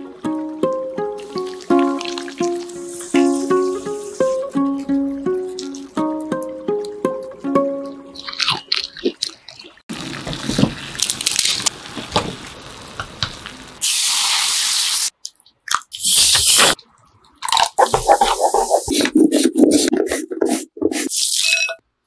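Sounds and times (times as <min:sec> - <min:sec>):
water boiling and bubbling: 0:01.1 - 0:07.0, 0:07.9 - 0:13.8
hot oil hissing: 0:01.2 - 0:04.6, 0:10.0 - 0:15.1
liquid poured hissing: 0:01.2 - 0:04.7.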